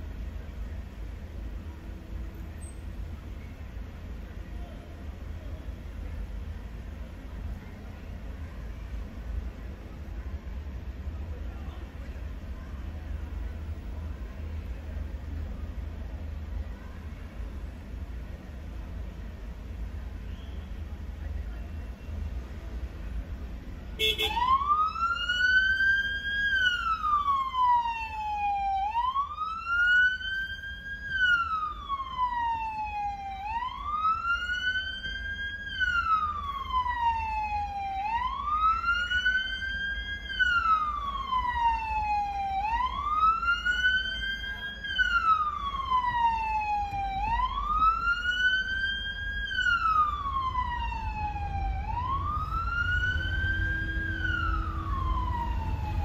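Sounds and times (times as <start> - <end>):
low traffic rumble: 0.0 - 56.0
police siren wailing: 24.0 - 56.0.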